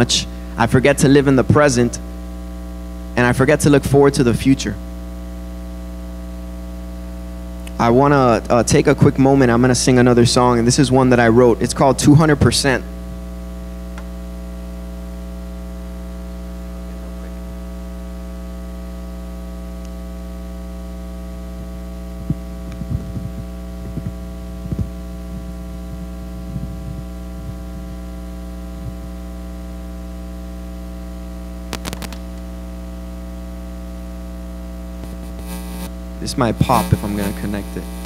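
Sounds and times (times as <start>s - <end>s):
electrical mains hum: 0.0s - 38.0s
microphone handling thumps: 21.4s - 29.2s, 31.7s - 32.5s, 35.0s - 36.0s, 36.6s - 38.0s
sharp clicks: 31.7s - 32.4s.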